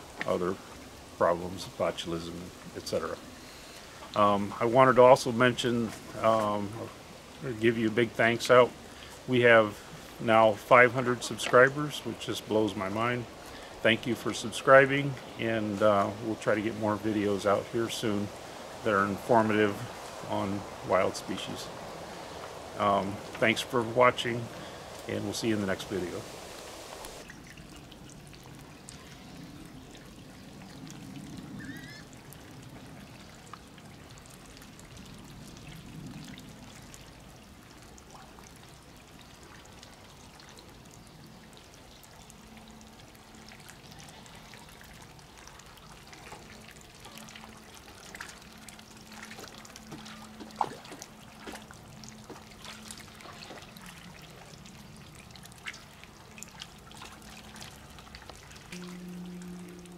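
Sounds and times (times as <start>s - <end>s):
water trickling: 0.0s - 59.9s.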